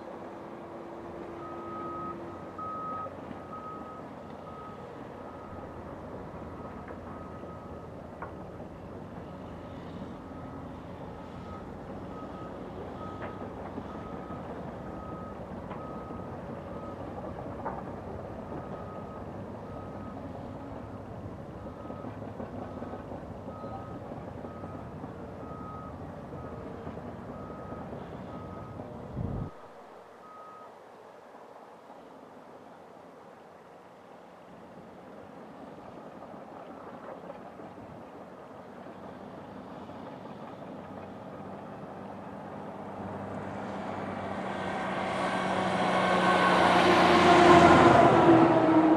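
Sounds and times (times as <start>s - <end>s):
heavy diesel engines running: 0.0s - 29.7s, 34.5s - 48.9s
truck reversing alarm beeping: 1.0s - 30.8s.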